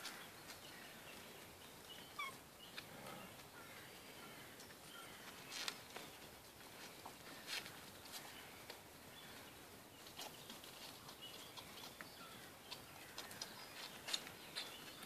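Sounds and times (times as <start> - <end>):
puppies chirping: 1.9 - 2.4.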